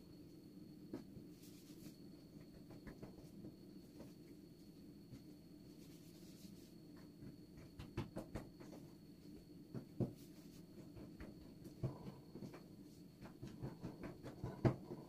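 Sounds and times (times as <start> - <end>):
low steady hum: 0.0 - 15.0
hands rubbing dough: 5.1 - 7.8.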